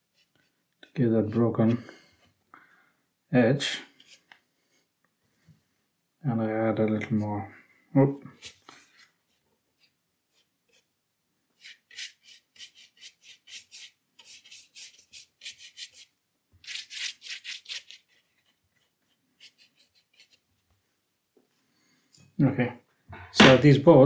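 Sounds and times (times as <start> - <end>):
paintbrush scratching on paper: 9.2 - 10.9, 11.6 - 20.6.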